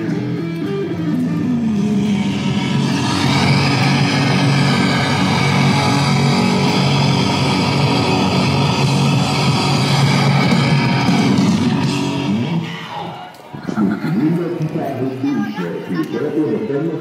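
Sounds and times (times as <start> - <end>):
electric guitar playing: 0.0 - 13.6
loud rock music: 0.0 - 13.6.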